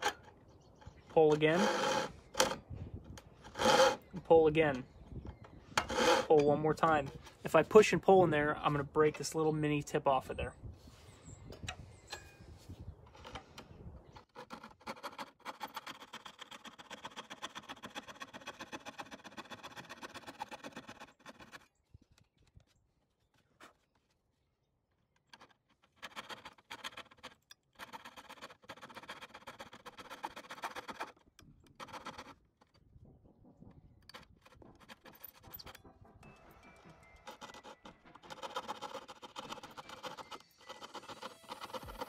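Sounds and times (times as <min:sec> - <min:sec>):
coping saw cutting wood: 0:00.9 - 0:04.9, 0:05.7 - 0:07.7, 0:14.2 - 0:21.7, 0:27.8 - 0:32.4, 0:36.2 - 0:42.0.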